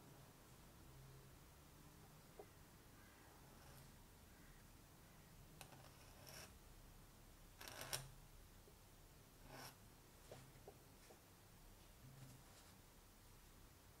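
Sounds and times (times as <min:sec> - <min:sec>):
pen nib scratching on paper: 0:09.5 - 0:09.8.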